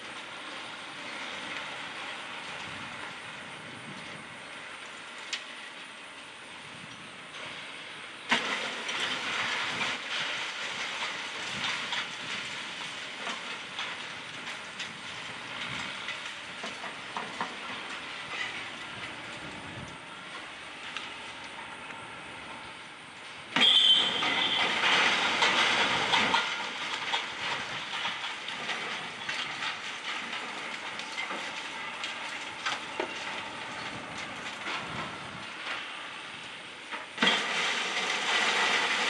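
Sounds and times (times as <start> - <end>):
masonry debris clattering down: 23.6 - 35.0, 37.0 - 39.0.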